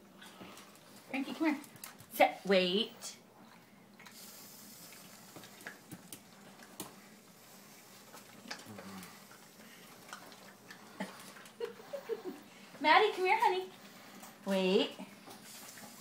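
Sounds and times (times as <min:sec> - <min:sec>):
dog licking and smacking: 0:00.3 - 0:02.2, 0:03.4 - 0:12.5.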